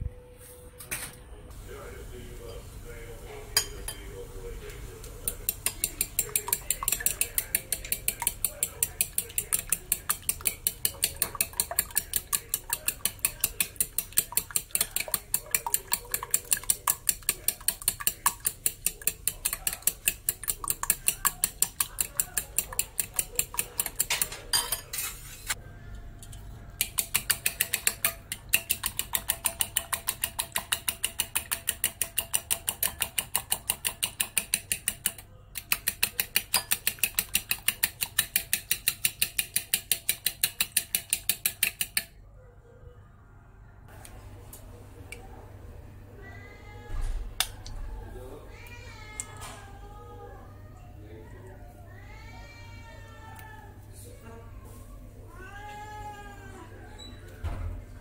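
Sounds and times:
fork beating eggs in glass bowl: 0:05.0 - 0:42.2.

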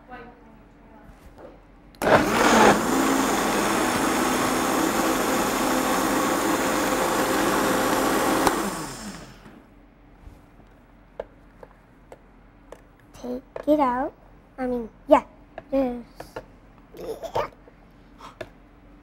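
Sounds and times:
blender running: 0:02.0 - 0:09.6.

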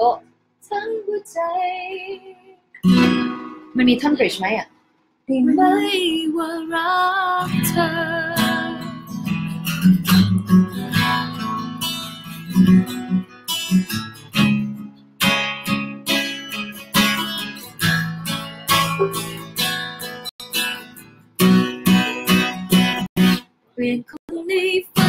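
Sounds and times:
acoustic guitar strumming chords: 0:02.8 - 0:04.3, 0:07.4 - 0:23.5.

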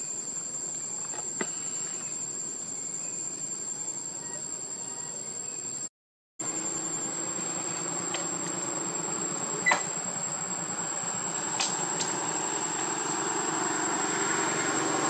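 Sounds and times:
high-pitched insect call: 0:00.0 - 0:15.0
outdoor hiss: 0:06.4 - 0:15.0.

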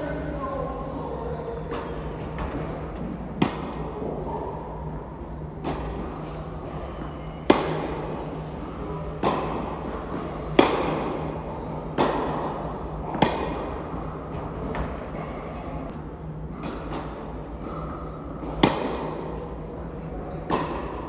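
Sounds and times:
tennis ball struck by rackets: 0:03.4 - 0:03.9, 0:07.4 - 0:08.0, 0:10.5 - 0:11.2, 0:11.9 - 0:13.8, 0:18.4 - 0:19.2.

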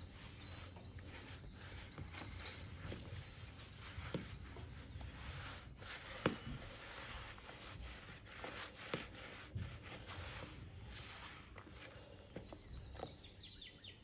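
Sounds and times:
hand mixing dough: 0:00.0 - 0:13.6.

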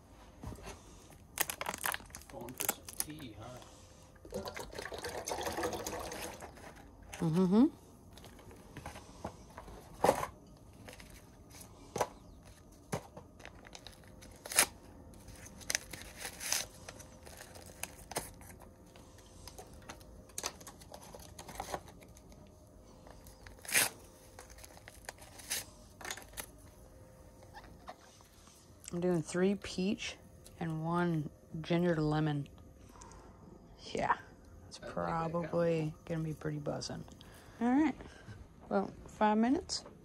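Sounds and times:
paper wrappers tearing and crinkling: 0:01.1 - 0:03.6, 0:13.3 - 0:18.8, 0:19.4 - 0:22.4, 0:23.1 - 0:26.6.

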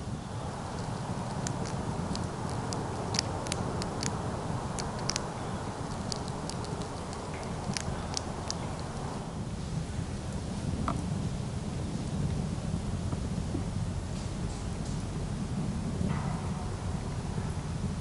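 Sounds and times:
chipmunk crunching cracker: 0:00.5 - 0:09.2.

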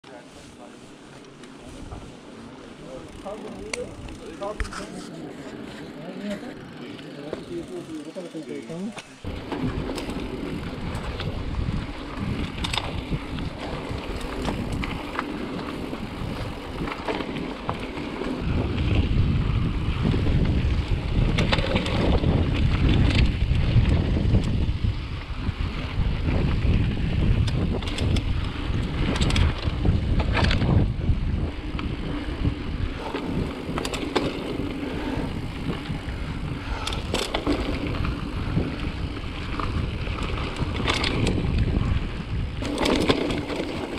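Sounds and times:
bike clicking and rattling: 0:01.1 - 0:43.9
tyres rumbling on dirt: 0:09.2 - 0:43.9
wind buffeting microphone: 0:09.2 - 0:43.9.

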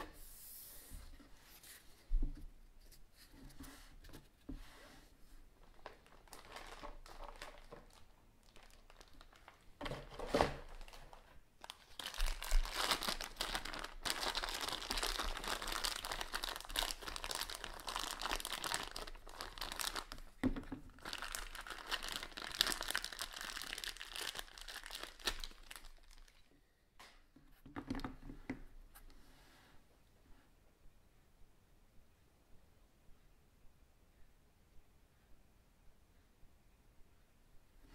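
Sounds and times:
plastic bag crinkling: 0:05.6 - 0:26.5.

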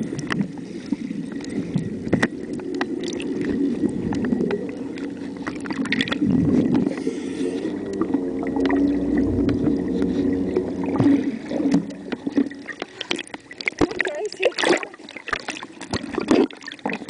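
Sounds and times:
boat motor droning underwater: 0:00.0 - 0:17.0.

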